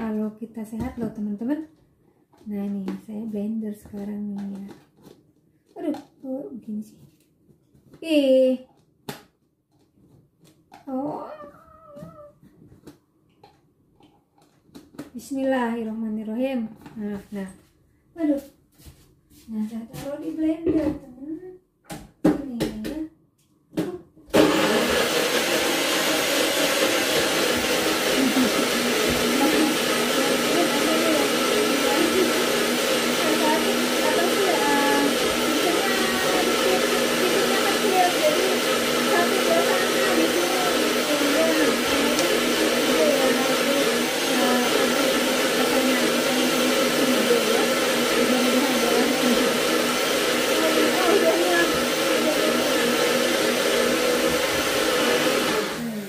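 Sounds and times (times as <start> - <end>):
electric blender running: 24.3 - 56.0.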